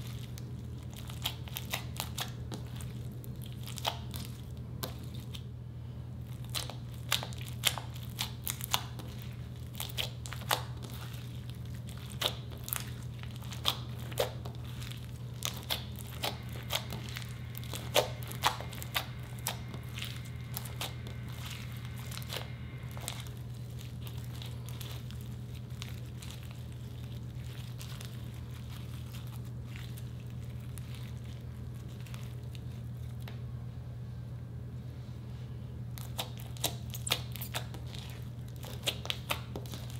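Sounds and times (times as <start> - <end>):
slime crackling and squelching: 0.0 - 33.4, 35.9 - 39.9
steady low hum: 0.0 - 39.9.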